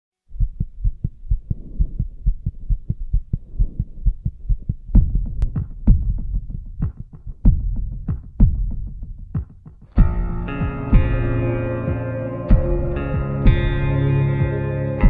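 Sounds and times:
low thumping pulse: 0.3s - 9.4s, 10.0s - 15.0s
sharp beat hits: 5.0s - 15.0s
faint hum: 10.0s - 15.0s.

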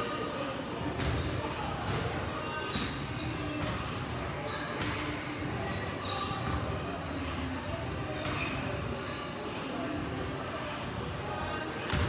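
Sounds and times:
murmur of voices: 0.0s - 12.0s
short high squeaks: 4.4s - 4.8s, 6.0s - 6.5s.

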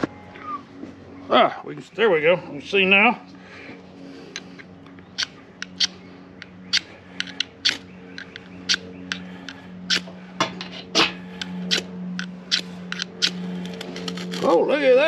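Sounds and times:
low hum: 0.0s - 15.0s
striker rasping on ferrocerium rod: 5.2s - 14.5s.

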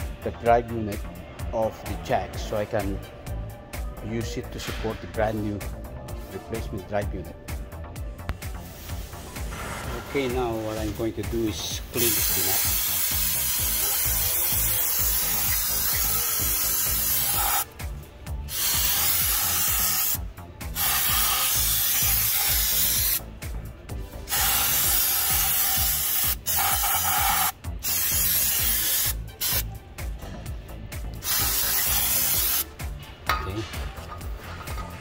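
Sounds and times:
cleaning spray hissing: 12.0s - 17.7s, 18.5s - 23.2s, 24.3s - 29.7s, 31.2s - 32.7s.

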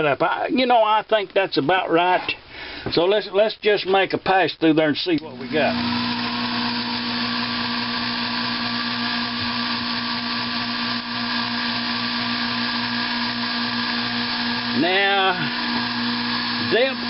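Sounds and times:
metal lathe motor whining: 5.4s - 17.0s.

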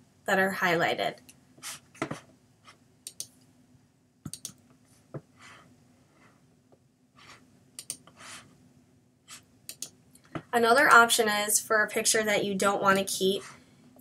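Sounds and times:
computer mouse clicks: 3.0s - 3.4s, 4.3s - 4.7s, 7.8s - 8.2s, 9.7s - 10.3s.

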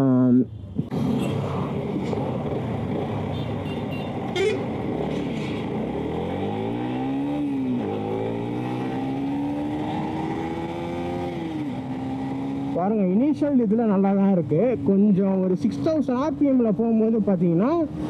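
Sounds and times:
motorcycle engine accelerating: 4.6s - 12.8s.

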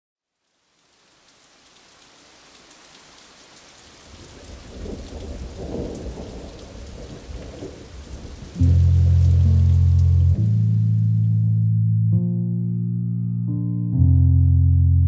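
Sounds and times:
steady rain: 0.2s - 11.3s
low rumble of thunder: 4.1s - 9.6s.

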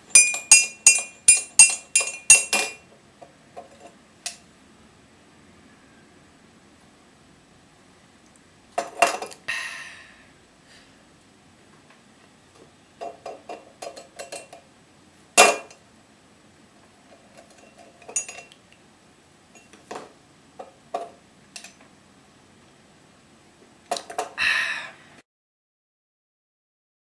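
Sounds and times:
bottle clinking against ceramic jug: 0.2s - 2.8s.

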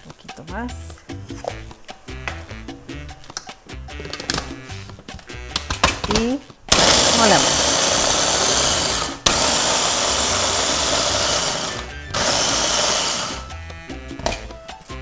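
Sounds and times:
background music: 0.0s - 15.0s
electric food chopper whirring: 6.7s - 13.6s.

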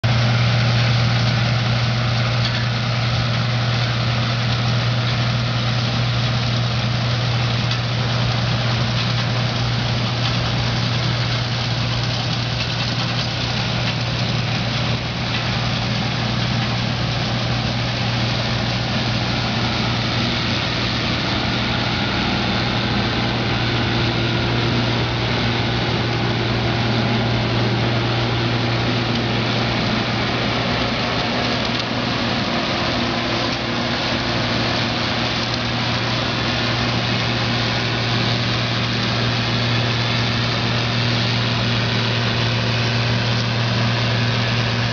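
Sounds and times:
combine harvester running: 0.0s - 44.9s.

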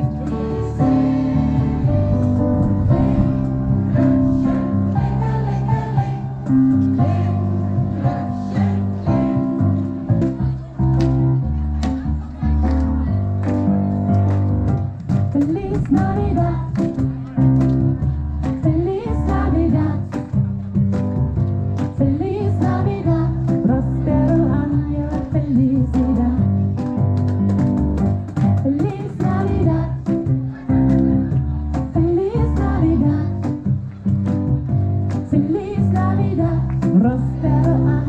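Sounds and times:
woman singing into a microphone: 15.3s - 16.7s, 18.6s - 20.2s, 22.0s - 26.6s, 28.6s - 30.3s, 31.9s - 33.5s, 35.3s - 38.0s.

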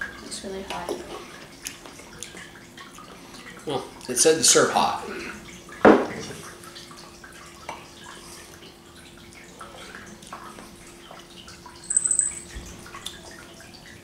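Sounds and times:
faint hum: 8.0s - 13.9s
ringing clink: 11.8s - 12.5s.

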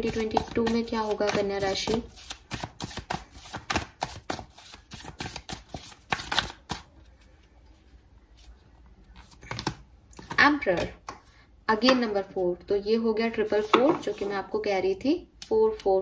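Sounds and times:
cards being shuffled: 0.1s - 7.4s.

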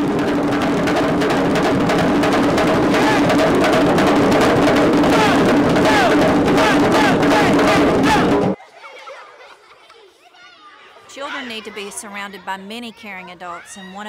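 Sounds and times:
hand drums ensemble playing: 0.0s - 8.6s.

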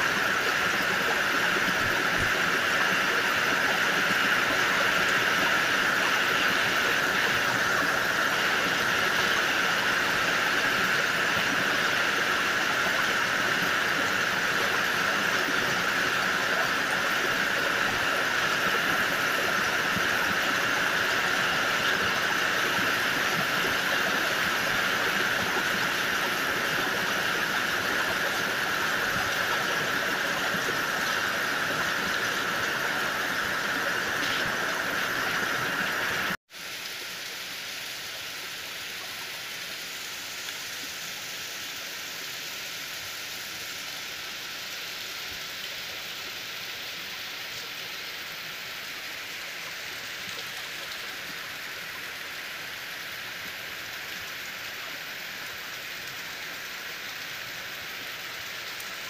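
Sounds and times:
heavy rain pouring: 0.0s - 38.9s.

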